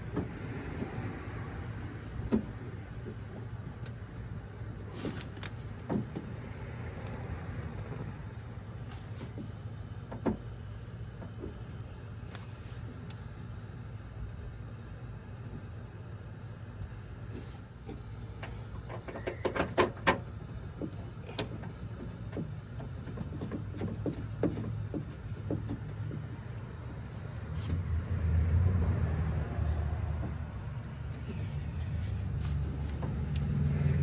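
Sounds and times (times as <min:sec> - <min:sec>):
clicks and knocks inside car door: 0:05.0 - 0:06.4, 0:09.3 - 0:11.7, 0:17.9 - 0:27.0.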